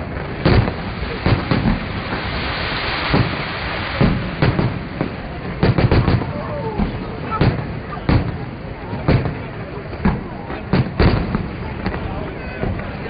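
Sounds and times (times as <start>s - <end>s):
steady firework hiss: 0.0s - 13.0s
firework shells bursting: 0.1s - 12.9s.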